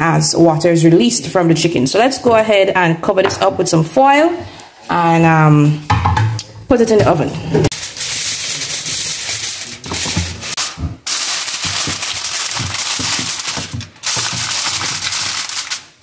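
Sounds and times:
aluminium foil crinkling: 0:07.7 - 0:16.0.

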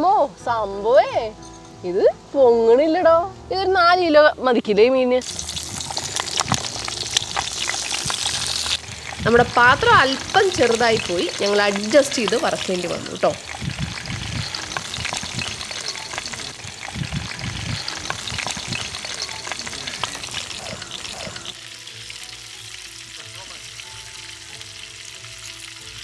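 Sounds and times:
background music: 0:00.0 - 0:26.0
fish deep-frying in hot oil: 0:05.2 - 0:26.0.

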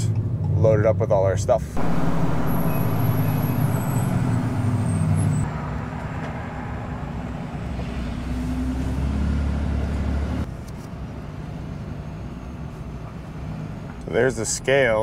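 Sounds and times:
road noise: 0:01.7 - 0:15.0
diesel engine drone: 0:01.8 - 0:10.5.

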